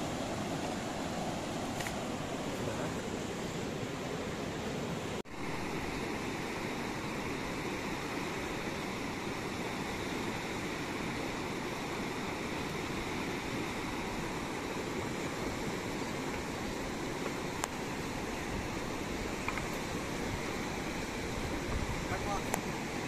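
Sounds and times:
river rushing over rapids: 0.0s - 23.0s.

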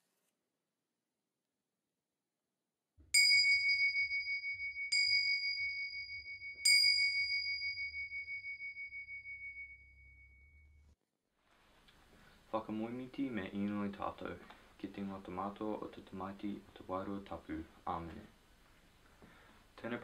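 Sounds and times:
small high-pitched bell ringing: 3.2s - 10.9s.

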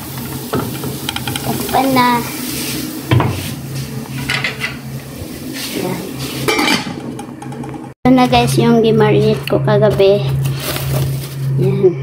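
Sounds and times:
food sizzling: 0.0s - 8.0s.

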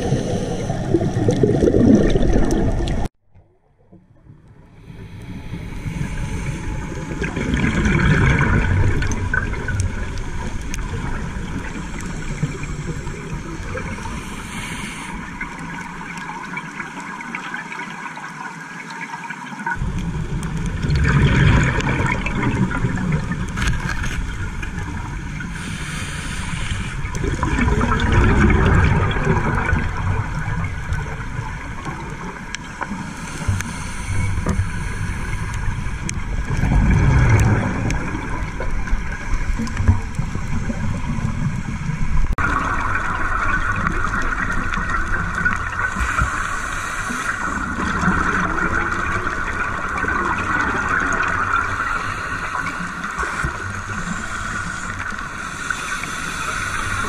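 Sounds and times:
regulator inhale hiss: 0.0s - 1.2s, 4.8s - 7.2s, 11.8s - 15.8s, 25.5s - 27.3s, 32.8s - 36.3s, 45.9s - 47.8s, 51.6s - 57.0s
exhaled bubbles rushing: 0.0s - 17.8s, 19.7s - 25.7s, 26.4s - 57.0s
underwater wash: 0.0s - 57.0s.

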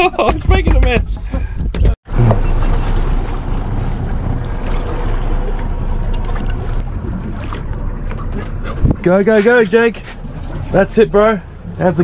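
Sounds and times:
wind rumbling on microphone: 1.4s - 9.1s
water noise: 2.1s - 12.0s.

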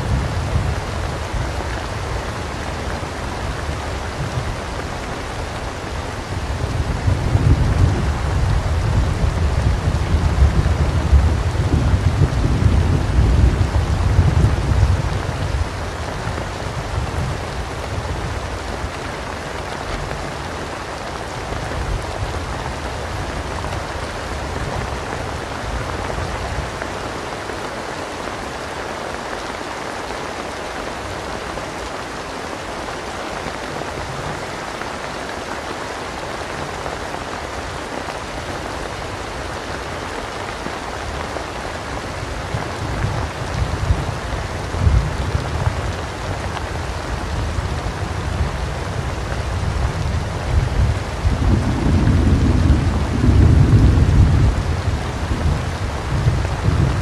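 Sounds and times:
thunder rumbling: 0.0s - 19.3s, 42.0s - 57.0s
steady rain falling: 0.0s - 57.0s.

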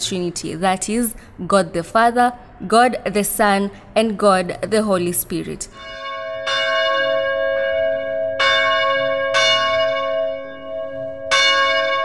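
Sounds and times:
church bell ringing: 5.7s - 12.0s.

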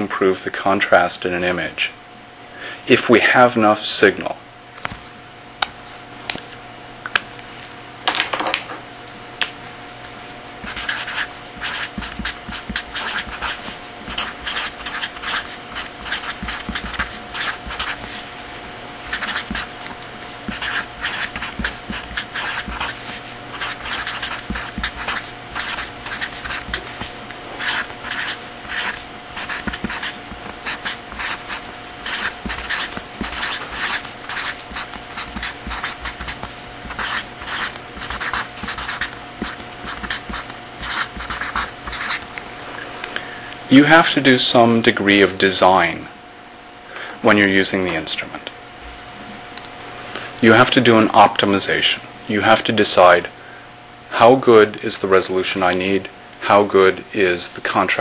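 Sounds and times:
faint hum: 0.0s - 58.0s
scratchy handwriting strokes: 10.6s - 18.3s, 19.0s - 42.2s.

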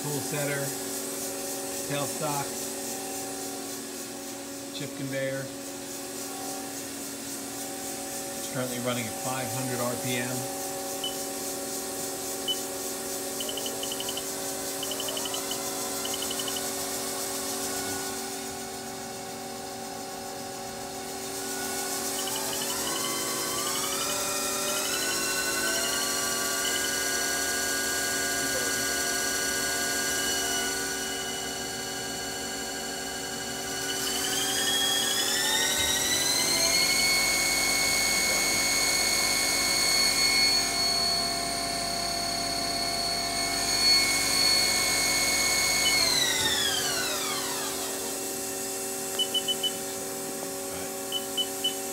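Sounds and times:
lathe spindle motor whine: 13.4s - 16.9s, 20.2s - 51.9s.

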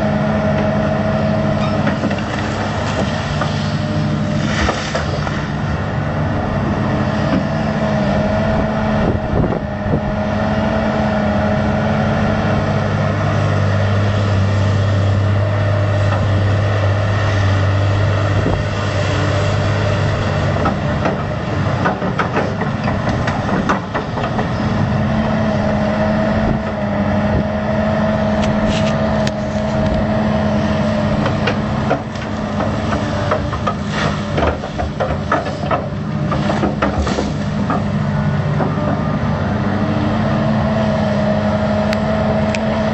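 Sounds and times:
excavator diesel engine running: 0.0s - 42.9s.

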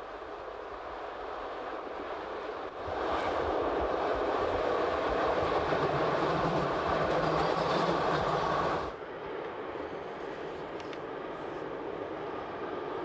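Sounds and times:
train wheels on rail: 2.9s - 12.8s.

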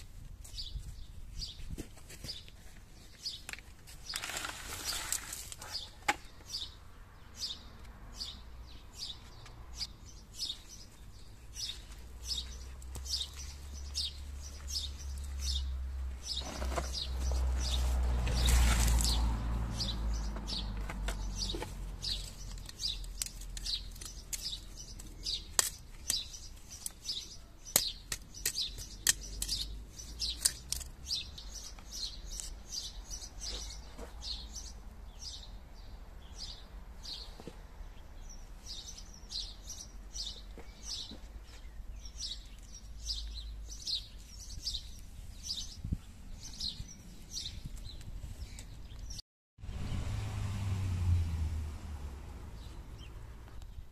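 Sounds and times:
small birds chirping: 0.0s - 49.2s, 52.5s - 53.9s
garden tool chopping into soil: 22.5s - 27.0s, 27.6s - 31.0s.

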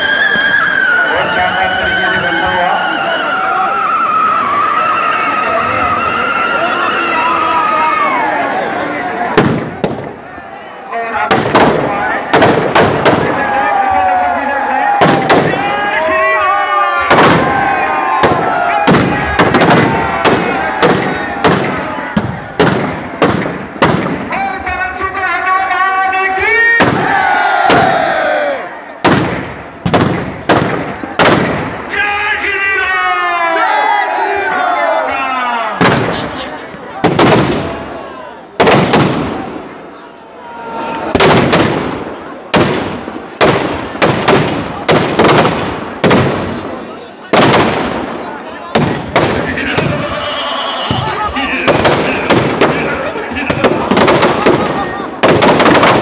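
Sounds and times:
crowd voices: 0.0s - 56.0s
firecrackers banging: 9.2s - 10.3s, 11.2s - 13.8s, 14.9s - 16.1s, 16.9s - 24.8s, 26.7s - 28.1s, 29.0s - 32.0s, 35.8s - 37.9s, 38.5s - 39.8s, 41.1s - 56.0s.

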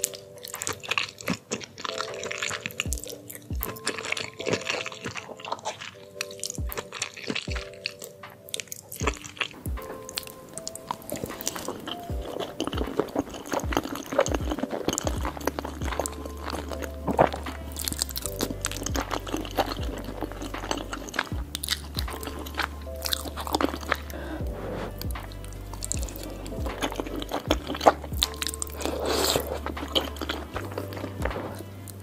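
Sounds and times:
chewing and biting food: 0.0s - 32.0s
background music with bass line: 9.0s - 32.0s.

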